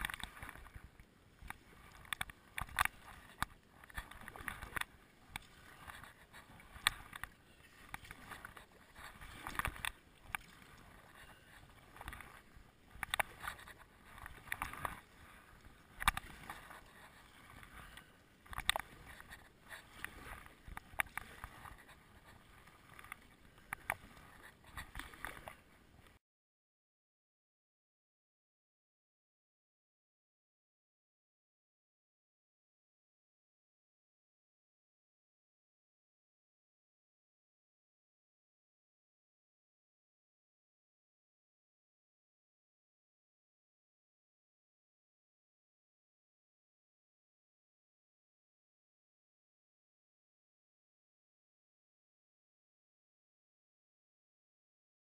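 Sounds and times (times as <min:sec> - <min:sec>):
kayak paddle splashing water: 0:00.0 - 0:26.1
low wash of moving water: 0:00.0 - 0:26.2.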